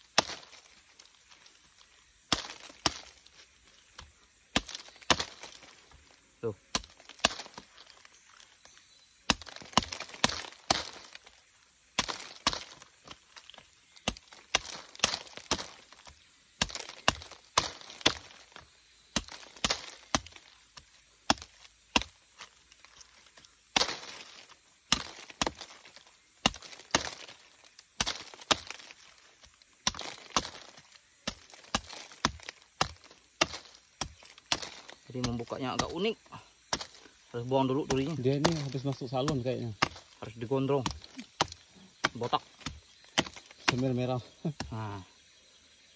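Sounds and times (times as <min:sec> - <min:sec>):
machete chopping fruit spines: 0:00.0 - 0:45.9.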